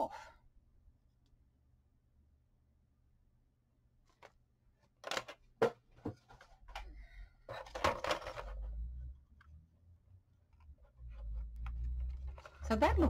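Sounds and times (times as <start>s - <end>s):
book rustling and scraping: 10.6s - 12.7s.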